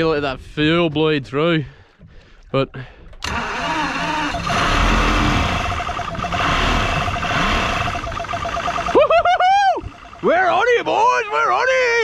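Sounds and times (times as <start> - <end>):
boat engine running: 3.1 - 11.6.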